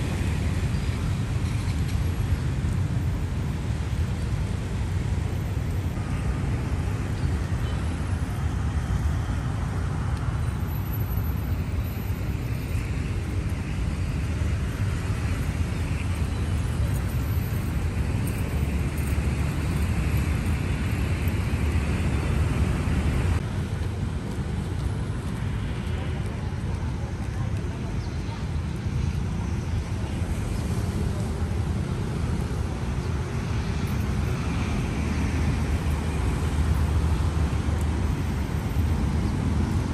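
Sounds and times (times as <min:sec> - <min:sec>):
city road traffic rumble: 0:00.0 - 0:39.9.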